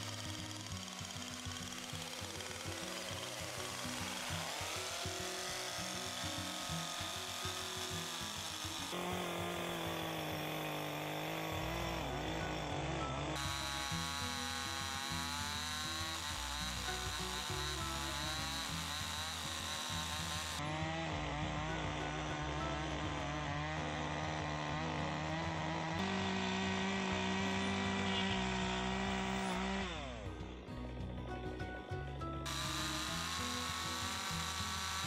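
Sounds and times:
chainsaw cutting log: 0.0 - 31.1, 32.4 - 35.0.

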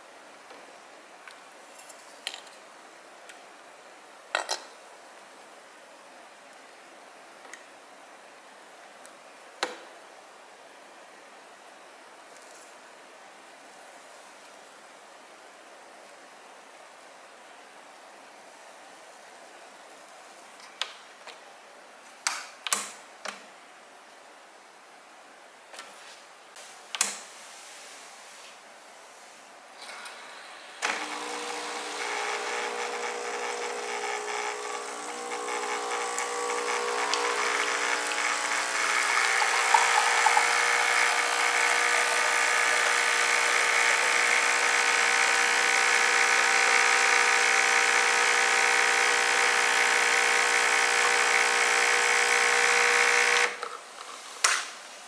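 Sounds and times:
espresso machine pump humming: 30.8 - 53.6.

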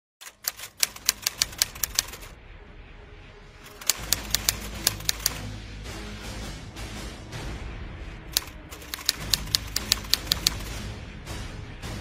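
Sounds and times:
typewriter key clicks: 0.2 - 2.3, 3.7 - 5.4, 8.4 - 10.7
low musical drone: 1.0 - 12.0.

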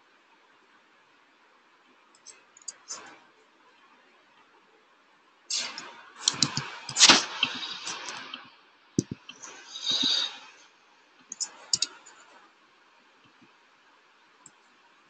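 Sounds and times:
mouse clicks: 5.6 - 8.2, 11.3 - 12.2
keyboard typing: 6.2 - 8.2, 11.3 - 12.2.

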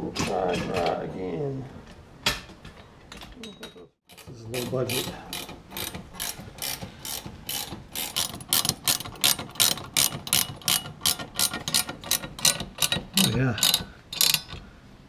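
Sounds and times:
hand ratchet clicking: 4.1 - 14.7.

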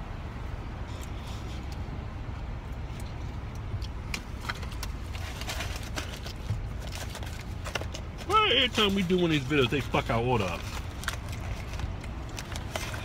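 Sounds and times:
car engine humming: 0.0 - 13.0
sandwich wrapper rustling: 3.8 - 13.0.

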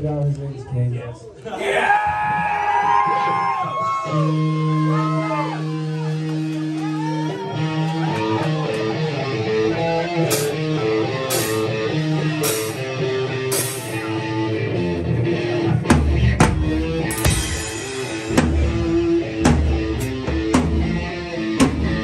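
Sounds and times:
electric guitar playing: 4.0 - 22.0
sharp crashes: 17.1 - 20.2.

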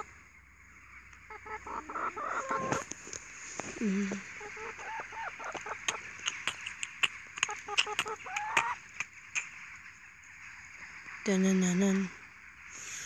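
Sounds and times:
hens clucking: 1.2 - 9.5
hen squawk: 1.3 - 2.9, 4.2 - 8.8
hens pecking on phone: 4.4 - 8.8.

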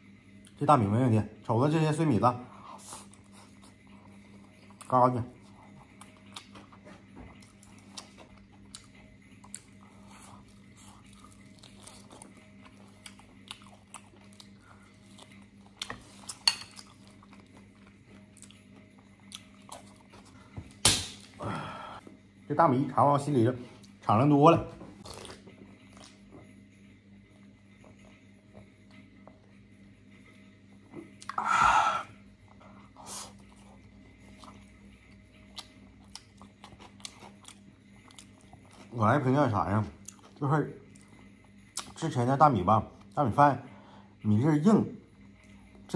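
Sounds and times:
person chewing: 2.8 - 21.4, 25.0 - 26.2, 31.0 - 31.5, 32.5 - 34.7, 35.4 - 39.0, 40.0 - 41.1, 41.7 - 42.0.

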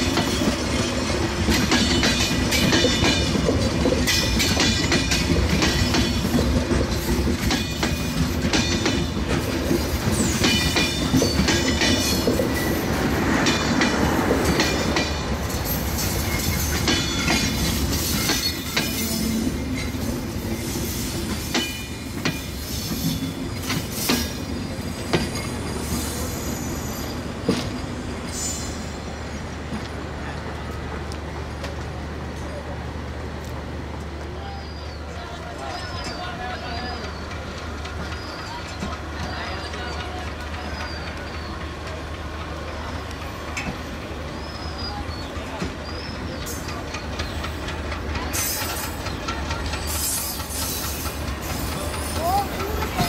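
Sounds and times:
clickety-clack over rail joints: 0.0 - 28.0, 29.5 - 53.0
train wheels rumbling on rails: 0.0 - 53.0
high wheel squeal: 15.4 - 29.5, 34.4 - 41.7, 43.8 - 53.0.

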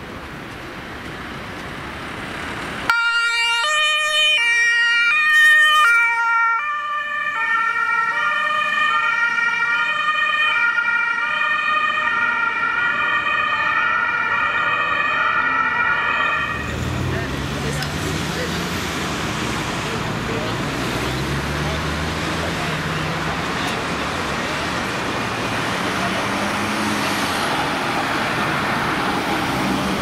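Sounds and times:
engine and traffic noise: 0.0 - 30.0
two-tone ambulance siren: 2.9 - 17.0.

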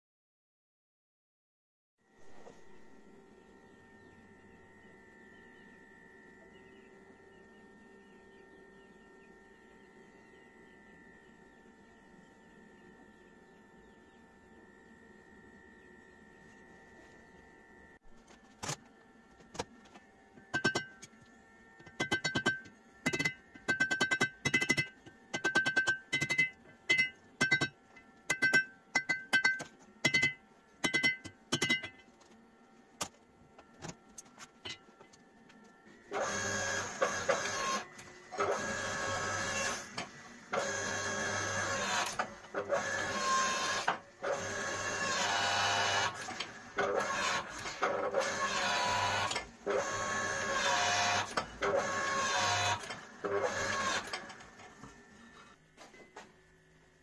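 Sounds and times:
hydraulic press motor running: 19.4 - 32.3, 36.0 - 55.6
hammer ringing on anvil: 20.5 - 21.1, 21.9 - 32.0.

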